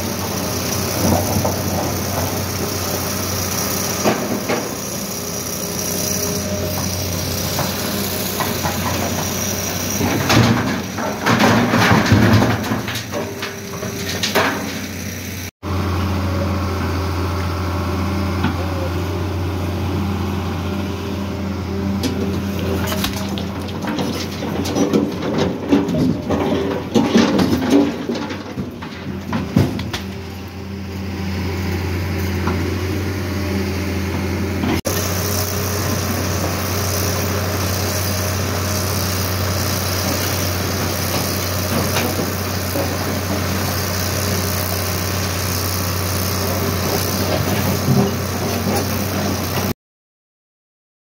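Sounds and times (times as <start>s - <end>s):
excavator diesel engine humming: 0.0s - 49.7s
stone blocks clattering into truck bed: 10.0s - 15.0s, 22.6s - 30.0s.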